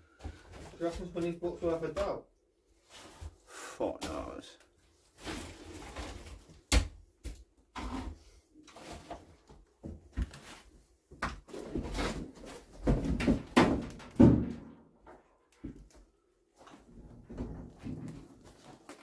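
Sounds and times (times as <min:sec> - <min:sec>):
objects knocking and clattering: 0:11.2 - 0:15.9, 0:16.9 - 0:19.0.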